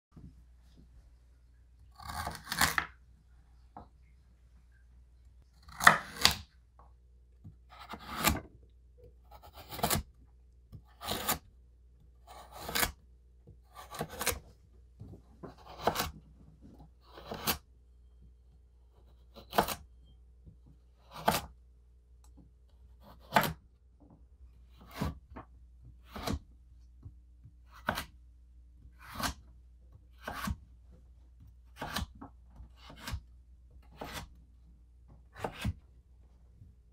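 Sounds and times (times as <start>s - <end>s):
knife cutting raw carrots: 1.9s - 3.0s, 5.6s - 6.5s, 7.6s - 10.1s, 10.7s - 11.5s, 12.2s - 13.0s, 13.6s - 14.5s, 15.5s - 16.2s, 16.9s - 17.6s, 19.0s - 19.9s, 21.0s - 21.6s, 23.0s - 23.6s, 24.7s - 25.3s, 26.0s - 26.5s, 27.6s - 28.2s, 28.8s - 30.6s, 31.4s - 34.4s, 35.2s - 35.8s.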